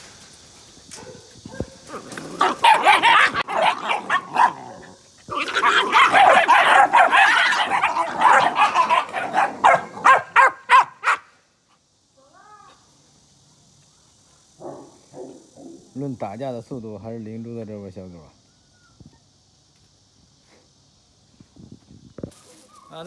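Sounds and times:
young dogs barking and yipping: 0:00.8 - 0:11.3.

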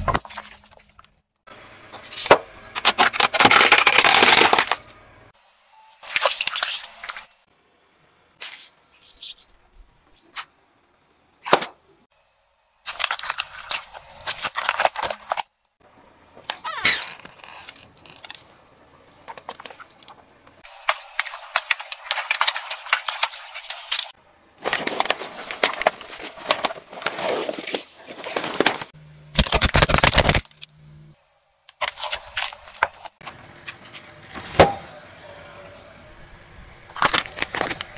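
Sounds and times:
balloons crackling under tyre: 0:16.4 - 0:30.6.

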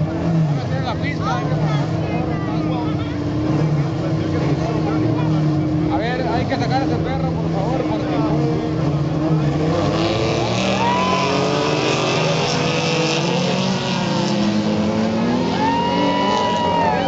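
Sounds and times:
pickup truck engines running: 0:00.0 - 0:17.0.

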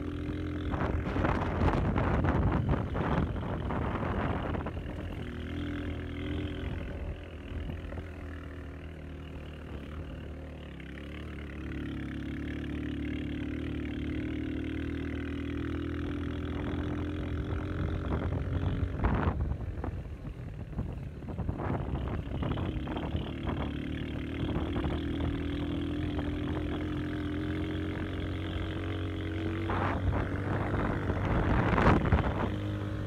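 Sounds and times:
vehicle engine running: 0:00.0 - 0:33.0
wind noise on microphone: 0:00.6 - 0:05.2, 0:16.6 - 0:23.8, 0:29.5 - 0:33.0.

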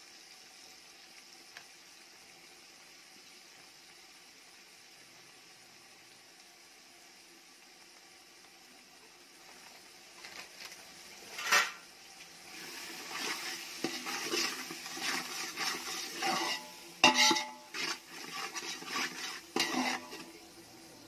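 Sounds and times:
metal spoon scraping a pot: 0:11.4 - 0:11.8, 0:13.0 - 0:20.4
spoon clanking against pot: 0:16.2 - 0:20.3.

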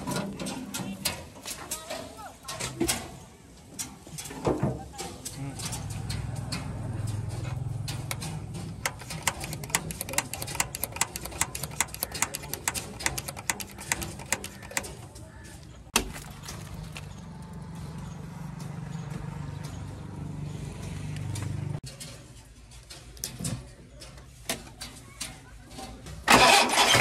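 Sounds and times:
hand primer pump clicking: 0:08.1 - 0:15.0.

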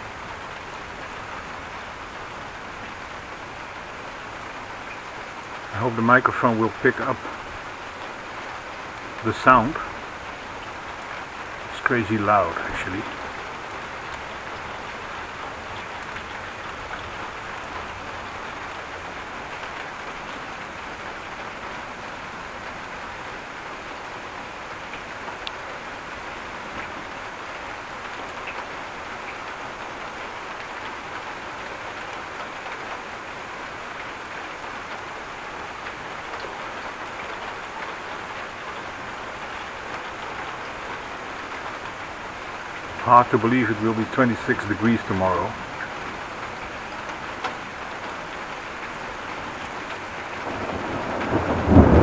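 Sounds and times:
heavy rain: 0:00.0 - 0:52.0.

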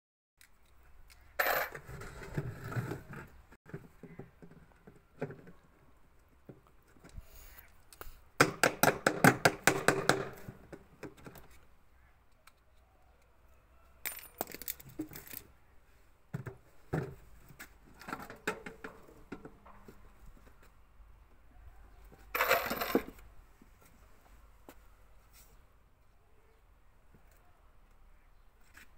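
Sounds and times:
metal tools clinking: 0:14.1 - 0:15.5, 0:22.3 - 0:23.2.

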